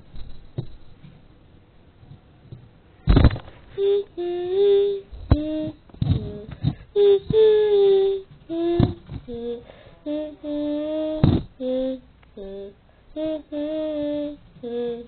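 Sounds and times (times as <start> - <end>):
person singing slow tune: 3.7 - 15.0.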